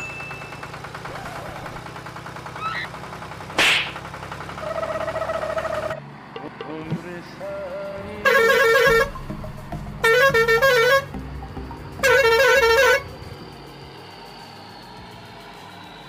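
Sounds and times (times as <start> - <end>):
warbling vehicle horn: 7.6 - 9.3, 10.0 - 11.3, 11.9 - 13.2.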